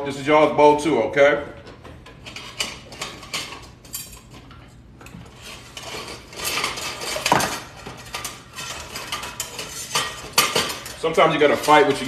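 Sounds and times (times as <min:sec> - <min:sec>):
metal utensils clattering: 0:02.1 - 0:04.5, 0:05.3 - 0:12.0.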